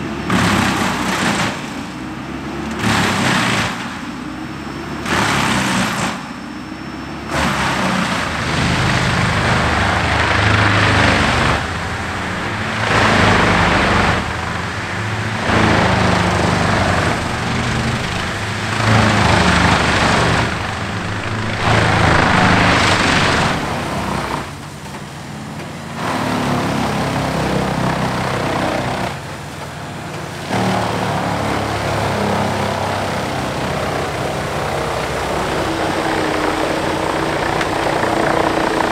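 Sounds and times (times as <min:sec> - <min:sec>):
diesel engines running hard: 0:00.0 - 0:38.9
wood being chipped: 0:07.3 - 0:25.1.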